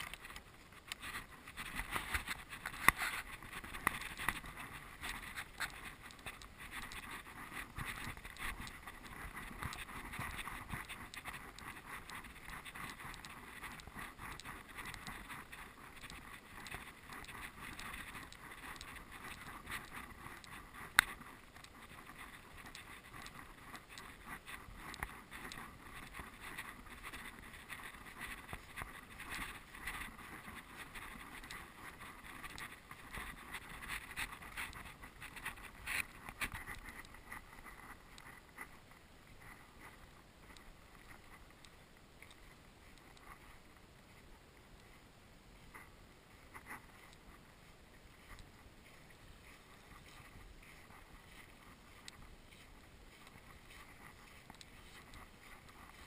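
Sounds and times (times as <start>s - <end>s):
footsteps on sand: 39.4s - 56.0s.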